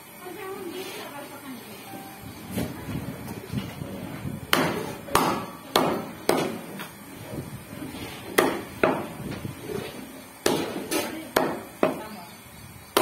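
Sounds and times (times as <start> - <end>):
cleaver chopping meat on wood: 4.5 - 6.6, 8.4 - 9.1, 10.4 - 12.0.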